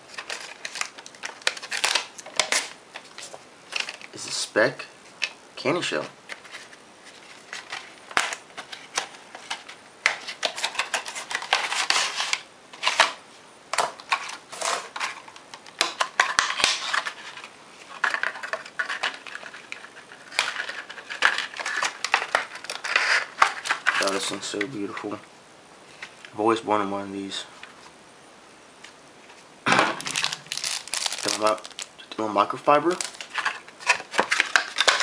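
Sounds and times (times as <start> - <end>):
packaging crinkling: 0.0 - 4.2, 13.8 - 24.5, 29.8 - 32.2, 32.8 - 35.0.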